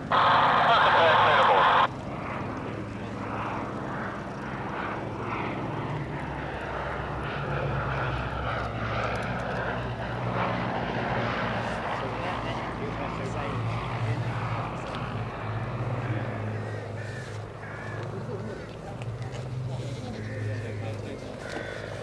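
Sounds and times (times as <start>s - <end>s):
biplane engine drone flying past: 0.0s - 22.0s.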